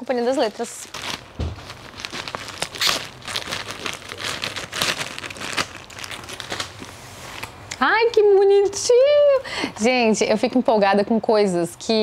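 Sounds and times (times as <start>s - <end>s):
packaging crinkling: 0.1s - 7.7s.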